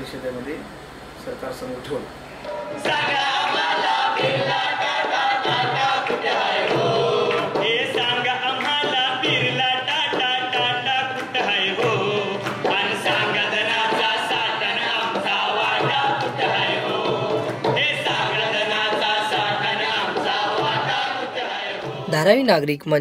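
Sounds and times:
group singing on microphones: 0:02.4 - 0:22.4
man leading the singing: 0:07.5 - 0:21.4.

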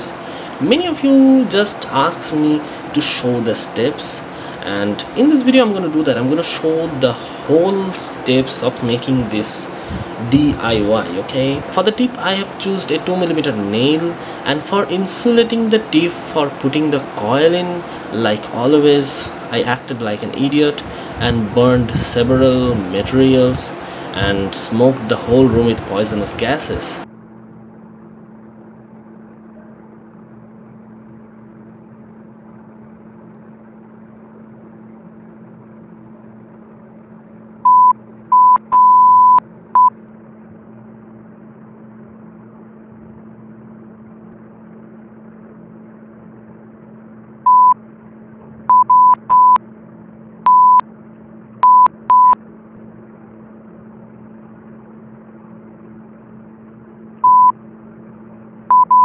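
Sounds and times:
steady low hum: 0:00.0 - 0:59.0
censor bleep tone: 0:37.6 - 0:40.0, 0:47.5 - 0:47.8, 0:48.7 - 0:49.6, 0:50.4 - 0:50.8, 0:51.6 - 0:52.4, 0:57.2 - 0:57.6, 0:58.7 - 0:59.0.

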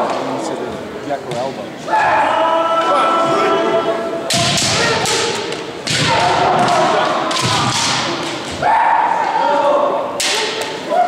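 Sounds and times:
people shouting: 0:01.8 - 0:11.0
bamboo swords clacking: 0:04.3 - 0:08.6, 0:10.2 - 0:10.9.

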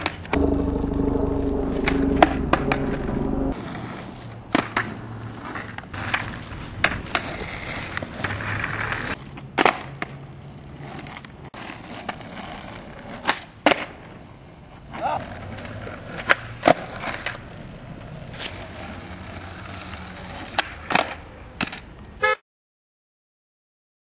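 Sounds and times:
skateboard wheels rolling on asphalt: 0:00.0 - 0:00.3, 0:03.6 - 0:22.2
steady low hum: 0:00.4 - 0:03.6
skateboard clacks: 0:04.5 - 0:21.9.

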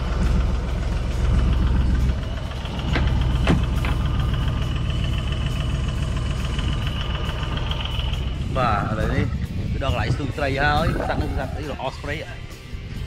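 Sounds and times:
boat engine rumble: 0:00.0 - 0:13.0
sharp knocks: 0:02.6 - 0:04.4.

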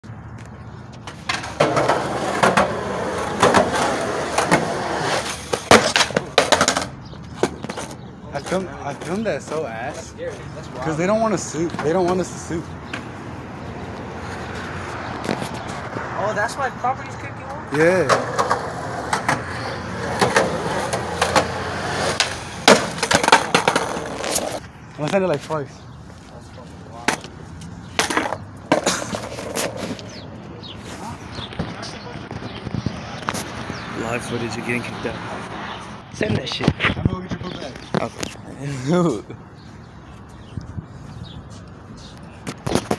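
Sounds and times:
skateboard wheels rolling on concrete: 0:00.0 - 0:42.9
street traffic hum: 0:00.0 - 0:42.9
skateboard clacks: 0:01.0 - 0:09.6, 0:18.0 - 0:24.6, 0:28.0 - 0:30.0.

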